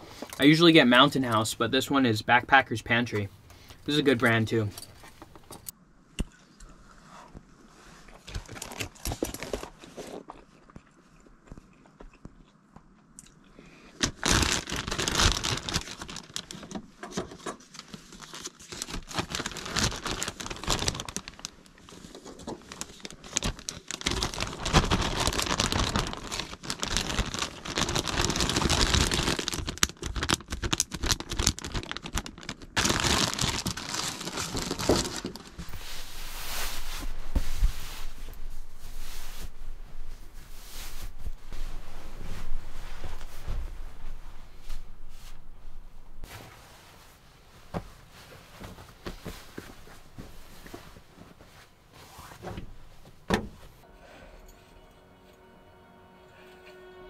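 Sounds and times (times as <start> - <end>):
foil pouch crinkling: 14.0 - 16.8, 17.6 - 39.6
plastic bag rustling: 14.0 - 17.0, 17.6 - 53.8.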